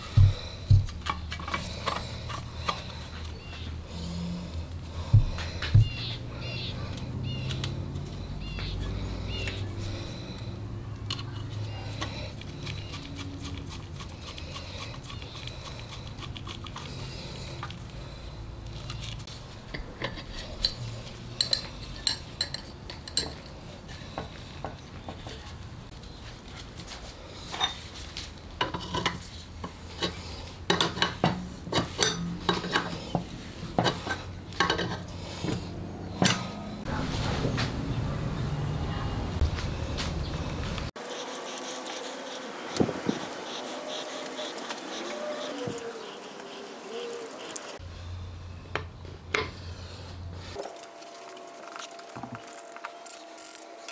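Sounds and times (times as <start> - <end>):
small tools clinking on metal: 19.7 - 23.6, 31.8 - 33.0.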